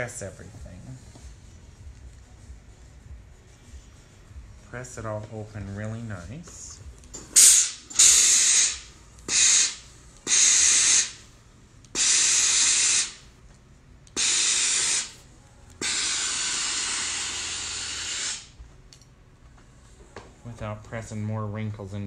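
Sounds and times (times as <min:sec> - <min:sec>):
steam iron hissing: 0:07.3 - 0:11.2, 0:11.9 - 0:13.2, 0:14.1 - 0:18.6.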